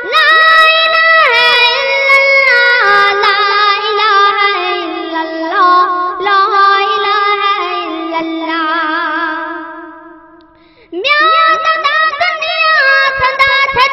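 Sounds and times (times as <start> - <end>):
boy singing devotional melody: 0.0 - 13.9.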